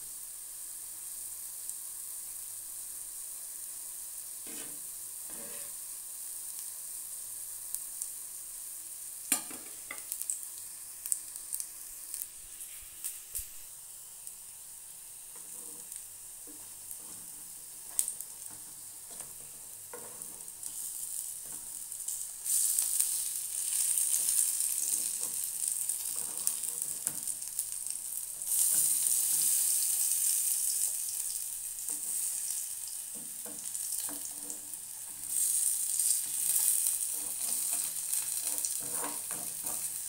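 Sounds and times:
food sizzling in oil: 0.0 - 40.0
spoon scraping pan: 4.5 - 5.8, 15.4 - 21.8, 22.4 - 27.4, 33.1 - 40.0.

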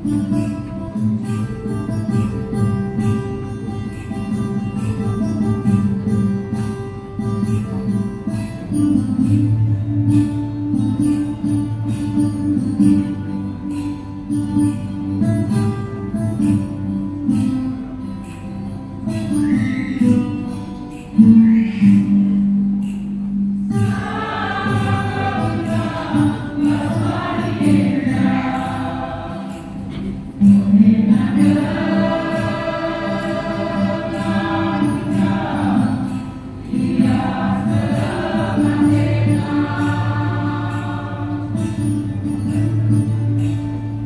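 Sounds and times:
ticking percussion beat: 0.0 - 44.0
choir singing a hymn: 23.8 - 42.1.

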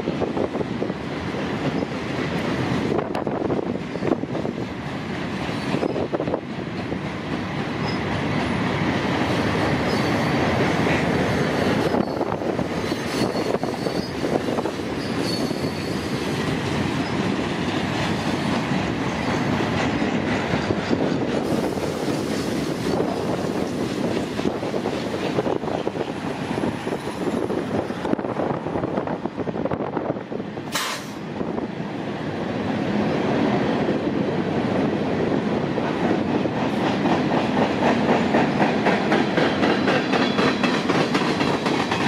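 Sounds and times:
train wheels on track: 0.0 - 42.0.

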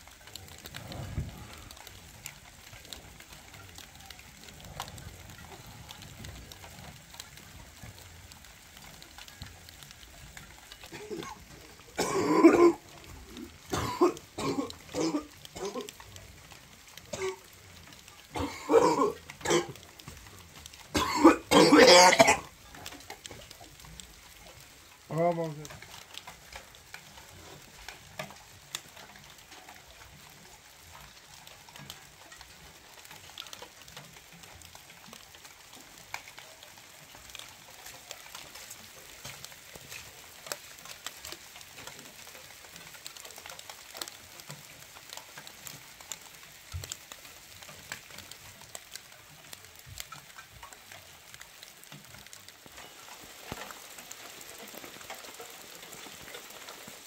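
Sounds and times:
light rain pattering: 0.0 - 57.0.

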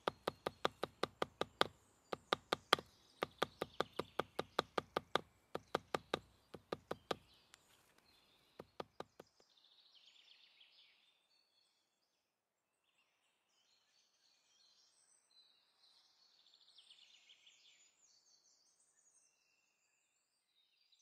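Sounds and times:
axe tapping on leather seam: 0.0 - 7.3, 8.6 - 9.4.

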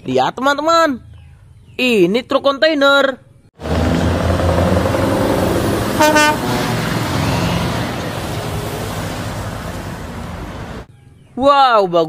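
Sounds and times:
truck horn toot: 3.6 - 10.6
truck engine passing: 3.6 - 10.9.

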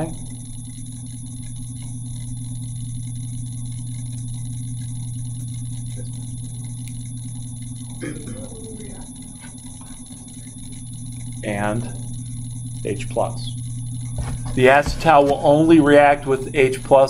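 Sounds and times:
faint high whine: 0.0 - 17.0
low electrical hum: 0.0 - 17.0.

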